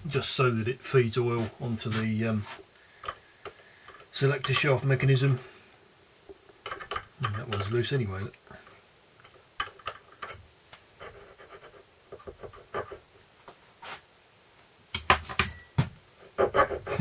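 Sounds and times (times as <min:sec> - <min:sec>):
metal clinks and ring: 0:15.3 - 0:16.0.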